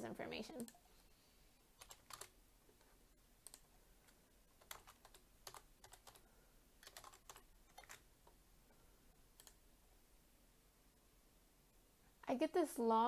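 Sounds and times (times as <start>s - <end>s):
faint keyboard typing: 0.5s - 1.0s, 1.8s - 8.4s, 9.3s - 9.7s.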